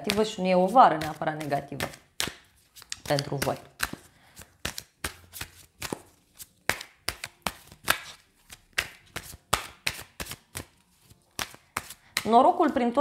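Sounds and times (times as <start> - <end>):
cards shuffled by hand: 0.1 - 12.8.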